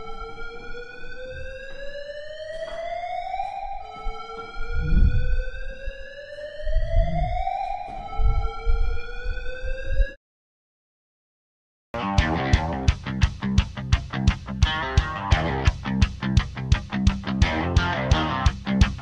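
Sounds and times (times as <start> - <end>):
rising alarm siren sweeps: 0.0 - 10.2.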